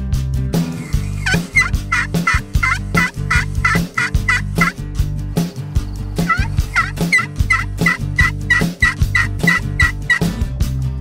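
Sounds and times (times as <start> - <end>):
turkey yelping: 0.9 - 4.8, 6.2 - 10.2.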